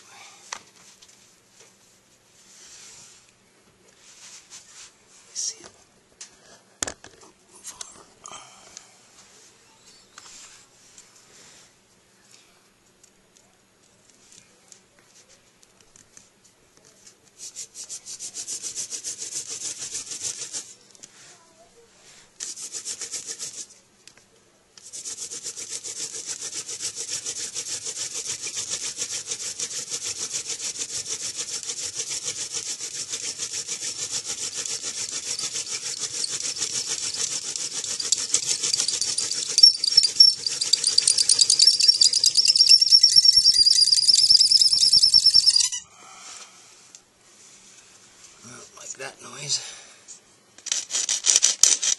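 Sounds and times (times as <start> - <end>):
wooden spindle grinding in hearth: 25.8 - 45.7
high squeal from spindle: 35.3 - 45.8.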